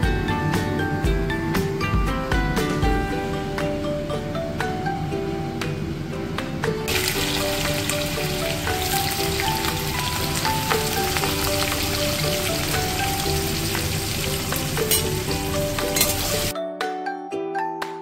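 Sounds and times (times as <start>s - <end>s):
background music melody: 0.0s - 18.0s
oil sizzling and crackling: 6.9s - 16.5s.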